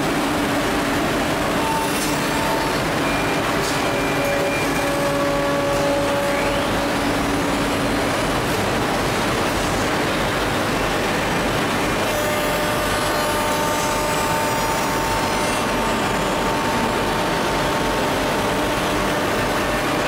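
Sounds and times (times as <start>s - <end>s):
machine noise: 0.0s - 20.0s
spindle whine: 12.0s - 20.0s.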